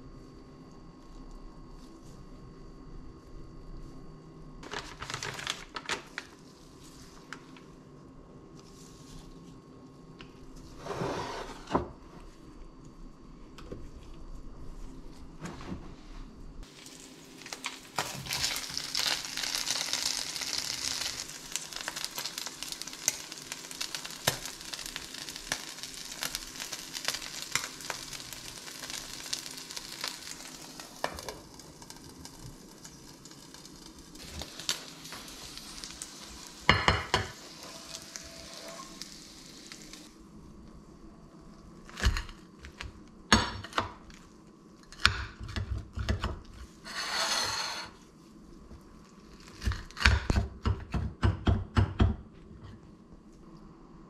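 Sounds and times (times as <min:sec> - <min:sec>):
food sizzling in a pan: 0:16.6 - 0:40.2.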